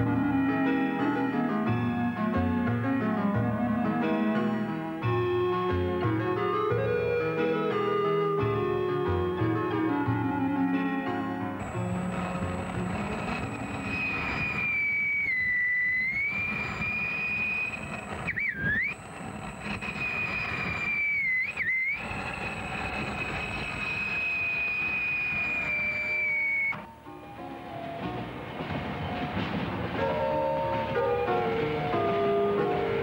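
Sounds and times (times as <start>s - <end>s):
steam train rumble: 11.5s - 33.0s
long high whistle tone: 13.0s - 26.9s.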